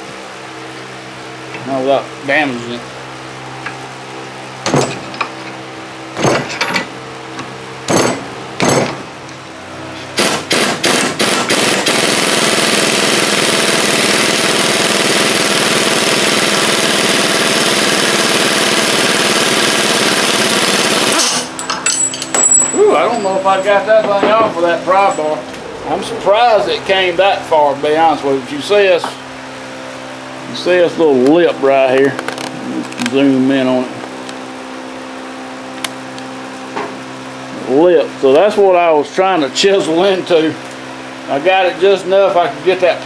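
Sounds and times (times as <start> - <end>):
impact wrench hammering: 4.6 - 5.5, 6.1 - 9.1, 10.2 - 12.0
sharp metal knocks: 4.6 - 5.5, 6.2 - 6.9, 7.9 - 9.1.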